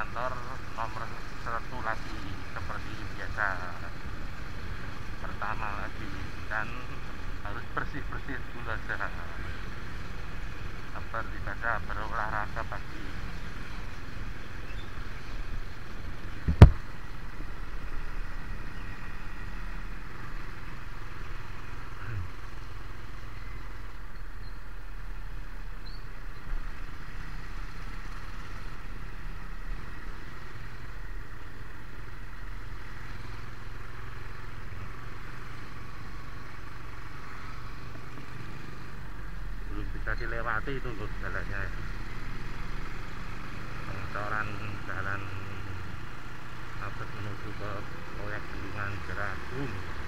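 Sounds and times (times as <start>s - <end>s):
vehicle road rumble: 0.0s - 50.0s
sharp knock: 16.5s - 16.8s.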